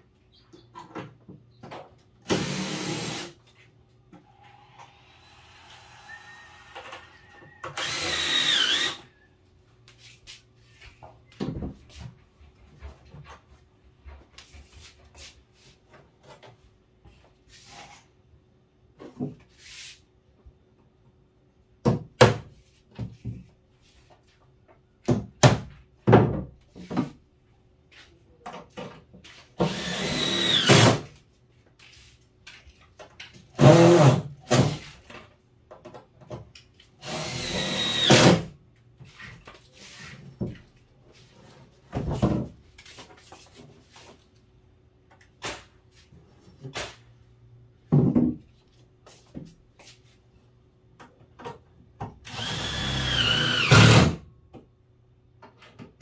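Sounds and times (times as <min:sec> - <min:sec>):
drill driving screws into wood: 0:02.2 - 0:03.4, 0:07.7 - 0:09.1, 0:29.6 - 0:31.1, 0:33.6 - 0:34.8, 0:37.0 - 0:38.5, 0:52.2 - 0:54.2.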